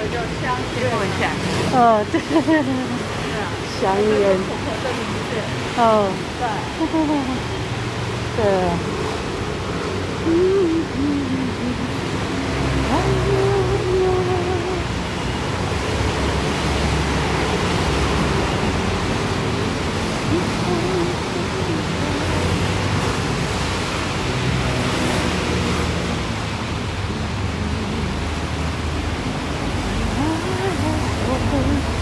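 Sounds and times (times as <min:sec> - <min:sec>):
rain on wet street: 0:00.0 - 0:32.0.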